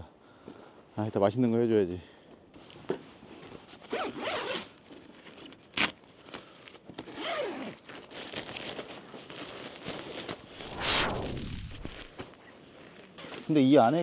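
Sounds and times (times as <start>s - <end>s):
tent zipper opening: 3.9s - 4.7s, 7.1s - 7.9s, 10.6s - 12.1s.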